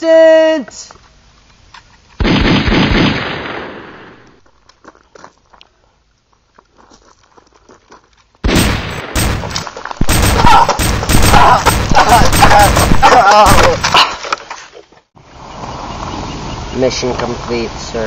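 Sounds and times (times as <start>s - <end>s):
rapid gunfire: 2.2s - 3.8s, 8.4s - 14.0s
pistol shot: 2.2s - 4.2s, 8.4s - 13.9s.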